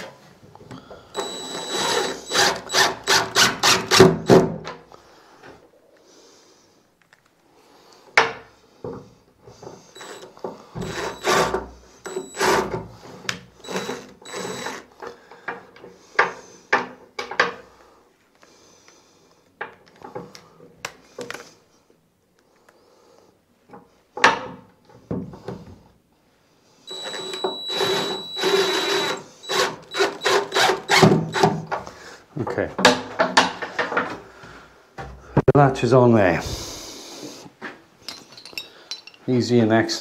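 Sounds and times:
screws driven into wooden door: 1.2 - 4.5, 10.0 - 12.8, 13.6 - 14.9, 26.9 - 31.6.

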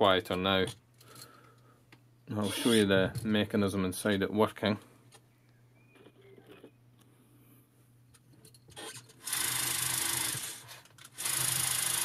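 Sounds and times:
clockwork mechanism whirring: 8.8 - 12.0.

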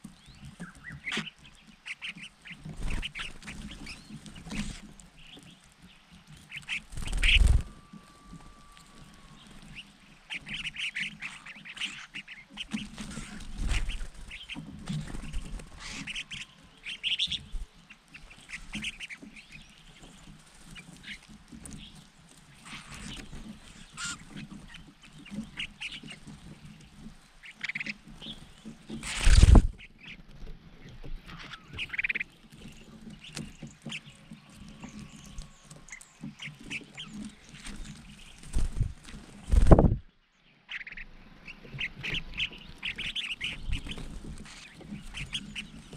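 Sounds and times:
birds chattering calls: 0.0 - 30.2, 30.8 - 45.9
low thud and rustle: 29.0 - 29.8.

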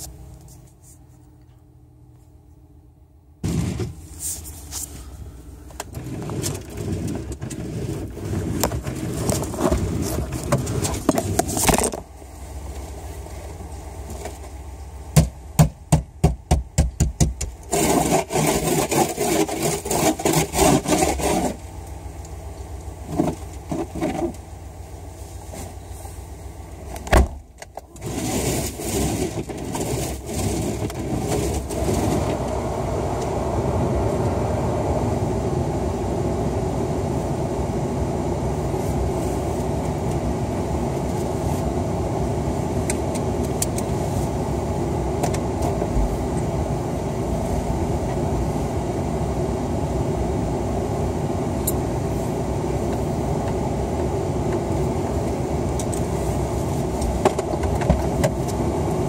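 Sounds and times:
low steady hum: 0.0 - 59.0
thump: 3.4 - 4.0, 27.1 - 27.4.

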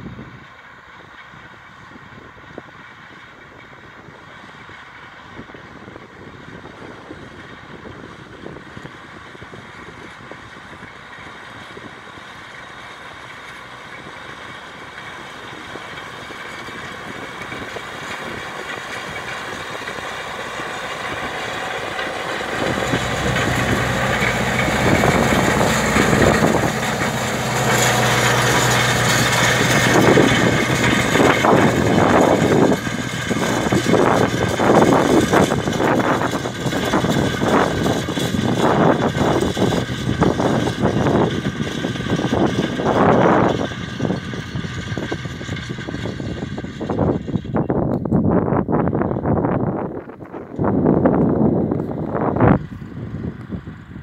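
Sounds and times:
tractor engine running: 0.0 - 54.0
roller rattling and knocking: 9.8 - 47.7.

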